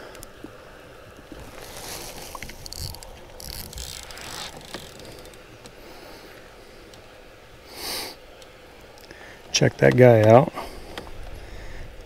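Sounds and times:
fish handling rustles and knocks: 1.1s - 7.1s.

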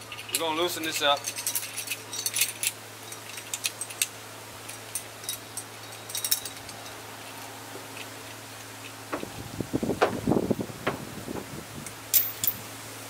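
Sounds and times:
steady low hum: 0.0s - 13.0s
ratchet clicks and chain clinks: 0.1s - 8.1s.

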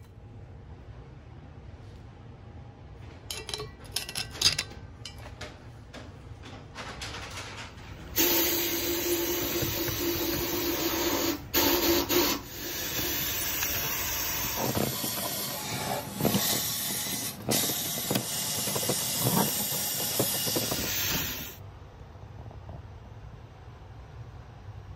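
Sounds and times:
sandblasting gun hissing: 8.2s - 21.6s.

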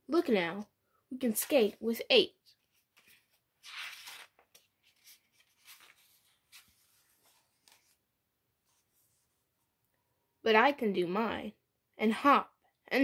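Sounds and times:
book page rustling: 2.4s - 9.5s.

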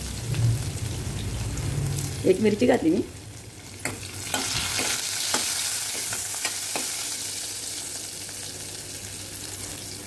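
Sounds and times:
spices sizzling in hot oil: 0.0s - 10.0s.

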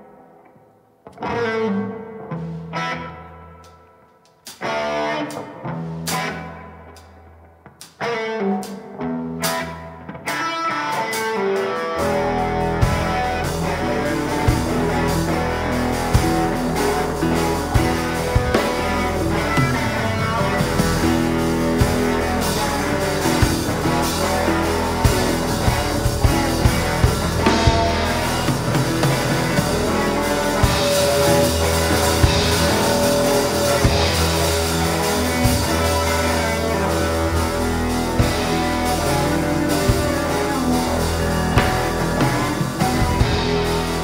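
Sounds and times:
electric guitars: 0.0s - 44.0s
drum kit: 4.3s - 44.0s
double bass: 12.0s - 44.0s
grand piano: 12.0s - 44.0s.

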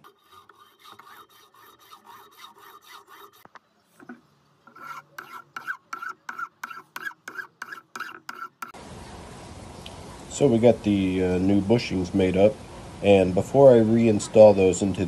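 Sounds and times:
hand file rasping on metal: 0.0s - 3.5s, 4.7s - 8.8s.

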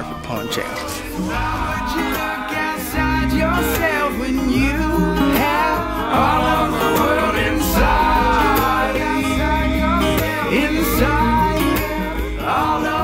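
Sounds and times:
song with guitar and beat: 0.0s - 13.0s.

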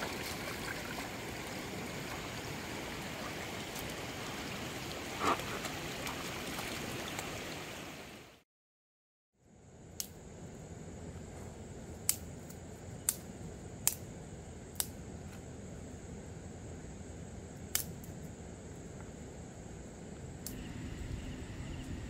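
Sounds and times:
stream water rushing: 0.0s - 8.4s.

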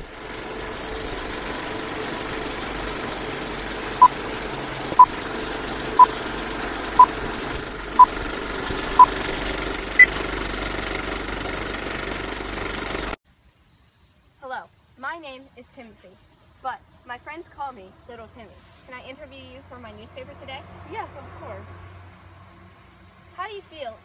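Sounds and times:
film projector running: 0.0s - 13.2s.

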